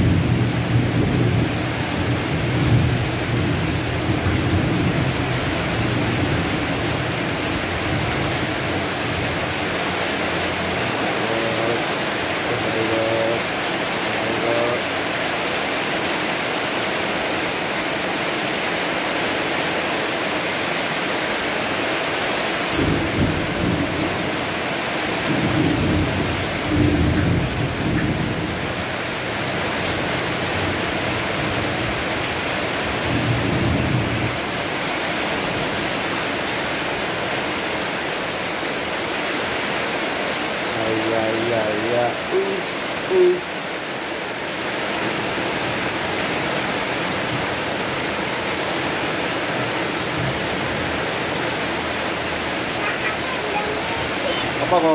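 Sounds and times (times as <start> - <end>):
heavy rain pouring: 0.0 - 54.9
thunder rumbling: 25.1 - 32.1.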